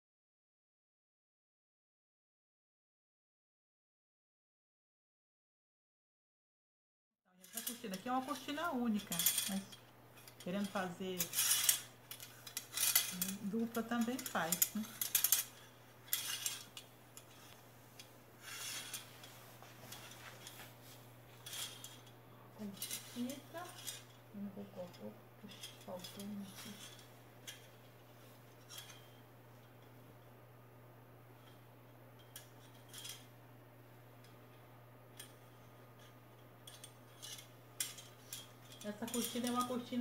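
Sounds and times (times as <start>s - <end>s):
metal curtain hooks clinking on rod: 7.4s - 19.1s, 28.6s - 29.2s, 32.2s - 33.3s, 35.1s - 40.0s
steady low hum: 7.4s - 40.0s
fabric rustling: 7.5s - 30.0s.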